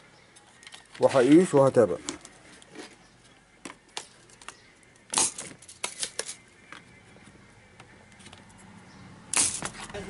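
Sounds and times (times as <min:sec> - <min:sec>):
tools clattering on workbench: 0:09.4 - 0:10.0.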